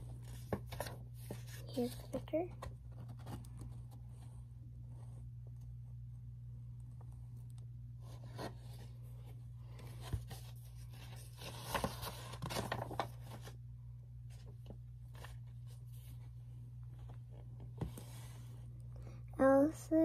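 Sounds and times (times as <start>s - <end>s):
book pages rustling: 0.0s - 4.5s, 7.4s - 13.6s, 14.3s - 18.7s
steady low hum: 0.0s - 20.0s.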